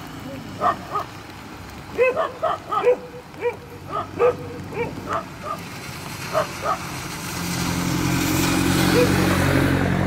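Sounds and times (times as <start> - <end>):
vehicle engine hum: 0.0 - 10.0
dog barking: 0.6 - 1.2, 1.9 - 5.6, 6.3 - 6.9, 8.9 - 9.2.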